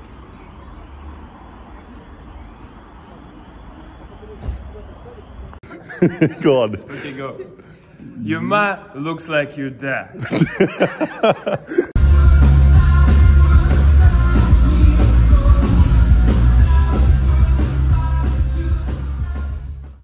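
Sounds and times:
man laughing: 5.6 - 7.8, 10.1 - 12.0
live rock band: 12.0 - 19.8
person singing into a microphone: 12.0 - 19.8.

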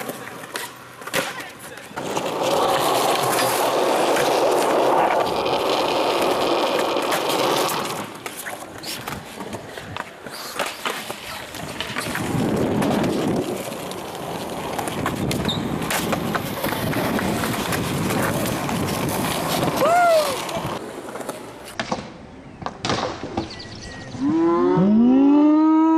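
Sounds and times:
skateboard clacking on ground: 0.0 - 23.4
skateboard wheels rolling on concrete: 0.0 - 23.9.

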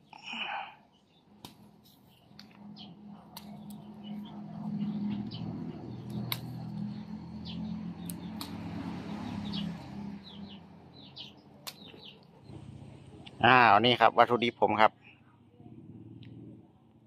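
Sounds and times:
small birds chirping: 0.0 - 17.0
low steady drone: 2.4 - 11.5
sharp clicks: 6.0 - 6.8.

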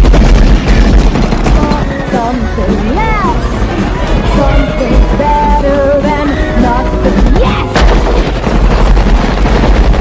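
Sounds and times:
rapid submachine gun fire: 0.0 - 2.0
tense orchestral music: 0.6 - 8.6.

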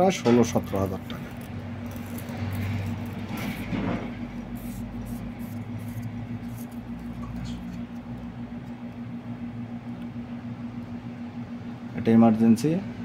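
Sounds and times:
steady low hum: 0.0 - 13.0
handling noise: 0.3 - 8.2.

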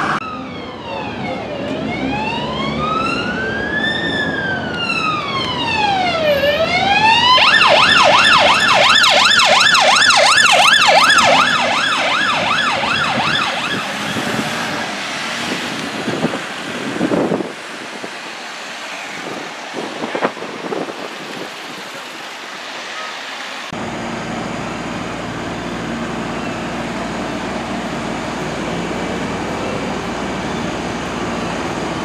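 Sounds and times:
ambulance siren wailing and yelping: 0.0 - 15.0
road traffic noise: 0.0 - 32.0.

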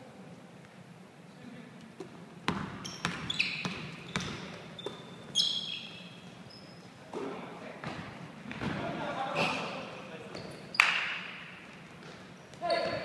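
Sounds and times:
sneakers squeaking: 2.0 - 13.0
basketball bouncing on hardwood: 2.5 - 5.0.

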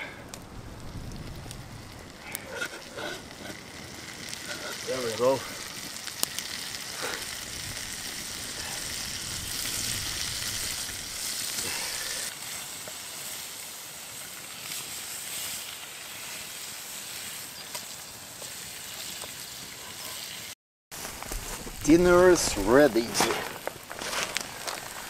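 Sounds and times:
fish sizzling in a pan: 1.0 - 23.0.

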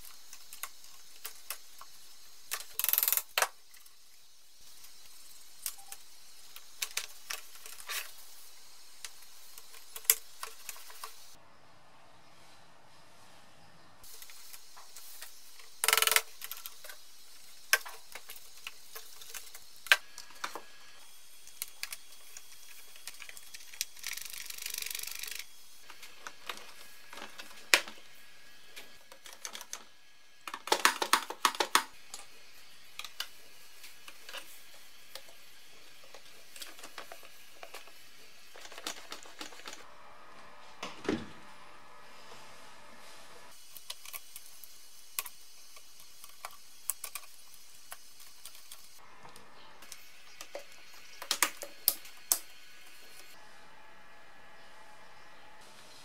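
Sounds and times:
plastic parts clicking and rattling: 0.0 - 4.0, 4.7 - 11.3, 14.1 - 20.7, 21.4 - 28.0, 28.7 - 32.3, 32.9 - 39.9, 43.6 - 49.0, 49.8 - 53.4.

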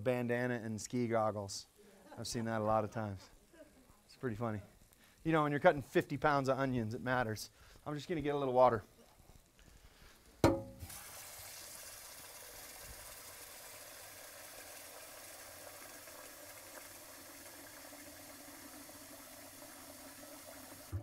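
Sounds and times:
sharp knock: 10.4 - 10.8
water running from a tap: 10.8 - 21.0.

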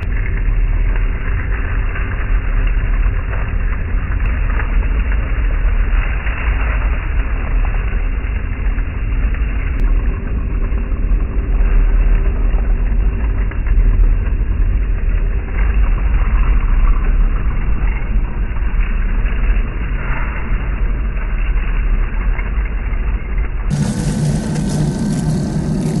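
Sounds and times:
faint steady whine: 0.0 - 26.0
toy tank low rumble: 0.0 - 26.0
leaves crackling under tracks: 23.7 - 26.0.

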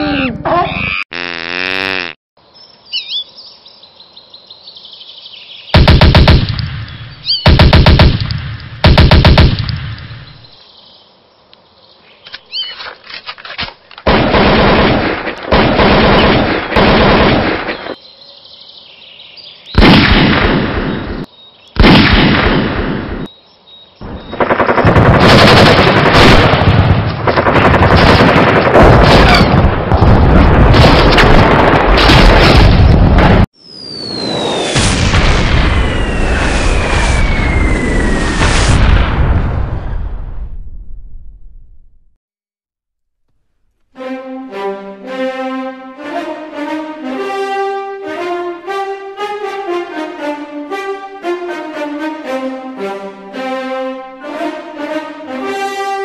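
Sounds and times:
automatic gunfire: 5.8 - 6.5, 7.5 - 8.2, 8.8 - 9.7, 14.1 - 17.8, 24.3 - 30.0.

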